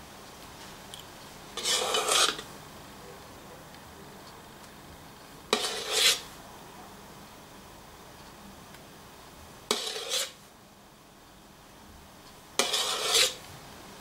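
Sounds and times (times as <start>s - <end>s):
metal spoon scraping steel bowl: 1.6s - 2.5s, 5.5s - 6.3s, 9.7s - 10.4s, 12.6s - 13.4s.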